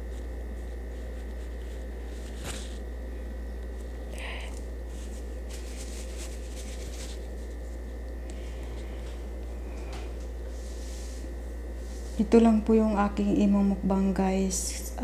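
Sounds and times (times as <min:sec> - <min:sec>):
low electrical hum: 0:00.0 - 0:15.0
faint clicks and rustles: 0:03.6 - 0:09.2.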